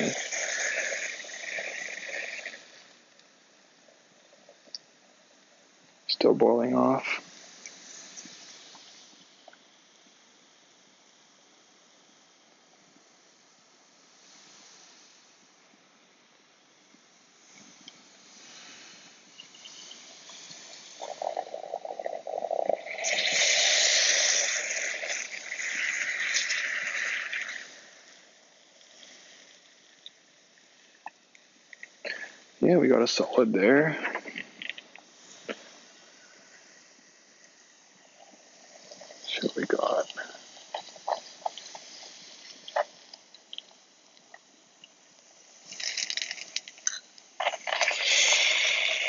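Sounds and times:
liquid nitrogen hissing: 0.0s - 16.2s, 16.8s - 49.0s
liquid crackling spatter: 19.4s - 27.9s, 36.9s - 49.0s.

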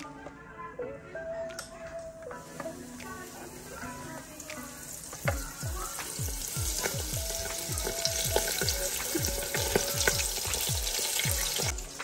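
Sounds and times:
oil sizzling in deep fryer: 2.4s - 12.0s.

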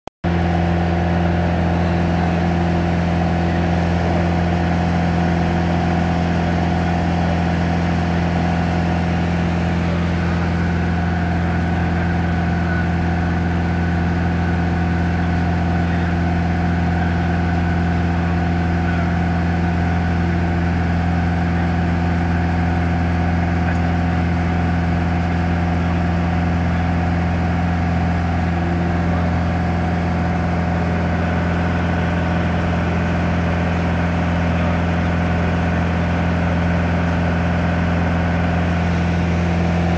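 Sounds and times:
aircraft engine and propeller droning: 0.3s - 39.9s.

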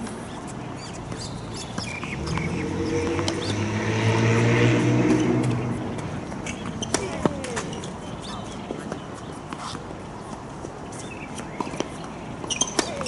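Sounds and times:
passing engine drone: 2.1s - 6.9s.

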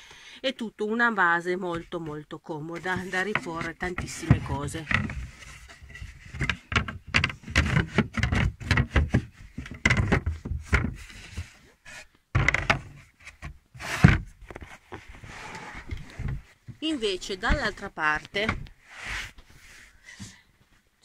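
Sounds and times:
wooden lid knocks and thumps: 2.8s - 14.7s, 15.8s - 18.7s.

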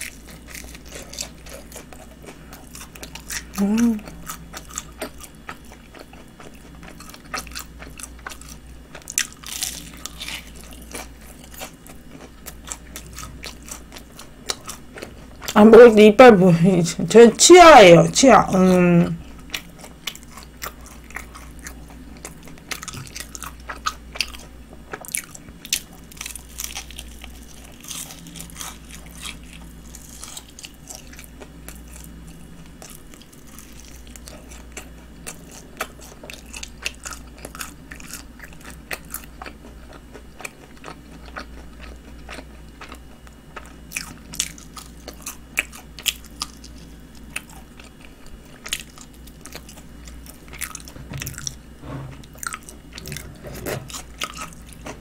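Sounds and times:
crisp crunching of fried coating: 0.0s - 15.6s, 19.4s - 32.1s
wet chewing: 0.0s - 15.6s, 19.2s - 32.1s, 32.7s - 55.0s.

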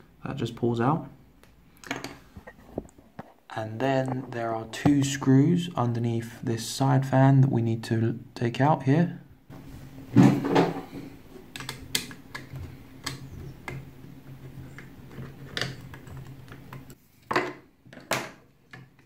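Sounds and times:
handling noise: 9.5s - 17.0s.

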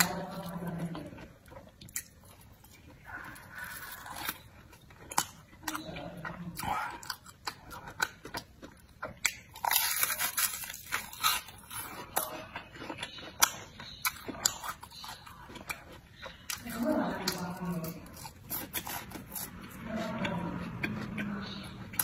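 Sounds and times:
chewing: 0.0s - 22.0s
crunchy bites: 6.6s - 19.8s.

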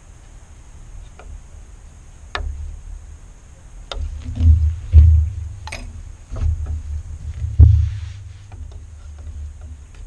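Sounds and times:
light clicks and knocks on wood: 3.9s - 10.0s
low thumps: 3.9s - 10.0s.

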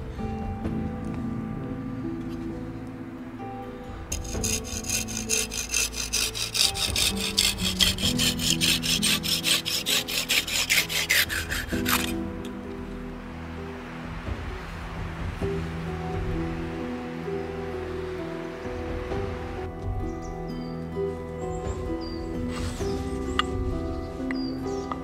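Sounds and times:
soft background music: 0.0s - 25.0s
hand saw cutting wood: 4.1s - 12.2s.

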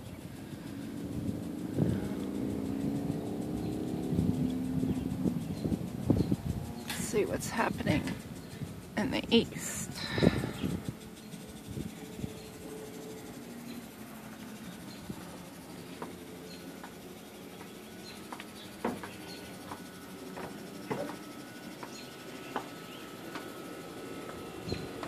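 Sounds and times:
insects: 0.0s - 25.0s
thin steady insect-like tone: 0.0s - 25.0s.

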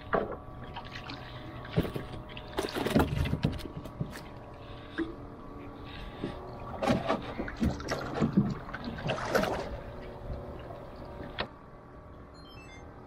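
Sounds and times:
water slapping canoe hull: 0.1s - 5.1s, 6.0s - 11.5s
paddle splashing in water: 6.8s - 9.9s.

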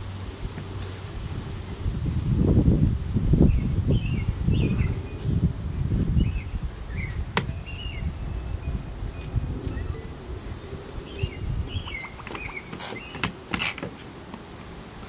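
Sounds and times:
wind buffeting microphone: 0.0s - 15.0s
small bird chirping: 11.0s - 13.3s.

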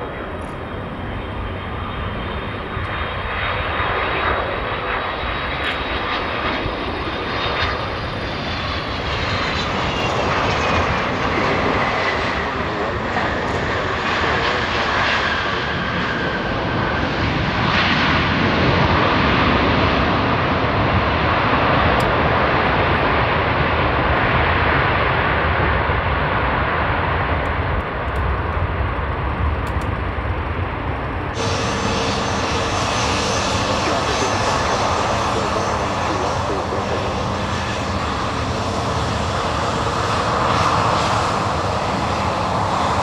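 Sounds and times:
jet airliner passing close by: 0.0s - 43.0s.

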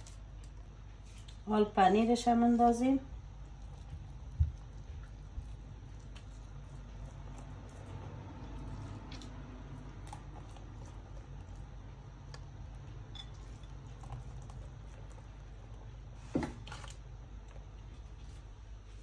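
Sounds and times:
low steady hum: 0.0s - 19.0s
grated cheese pattering: 3.0s - 18.6s.

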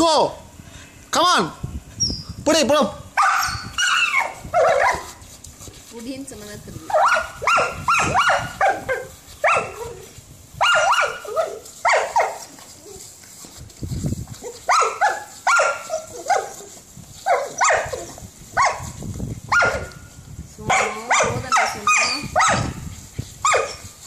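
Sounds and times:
dog yelping: 3.2s - 5.2s, 6.9s - 13.0s, 14.4s - 18.9s, 19.5s - 20.0s, 20.8s - 22.8s, 23.4s - 23.9s.

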